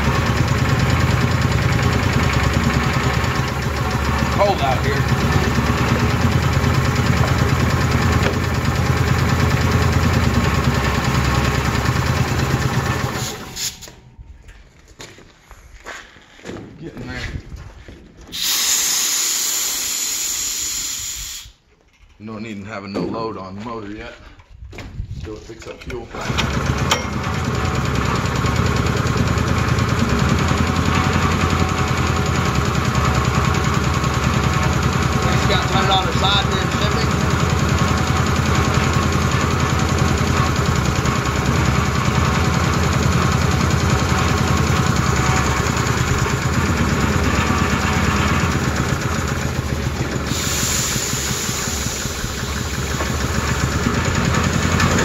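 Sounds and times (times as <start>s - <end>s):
small gasoline engine running: 0.0s - 14.0s, 26.1s - 55.0s.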